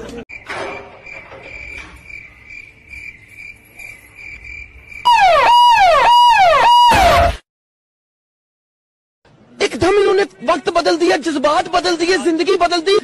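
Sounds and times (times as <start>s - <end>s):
cricket chirping: 0.3s - 5.2s
falling electronic tone: 5.1s - 7.4s.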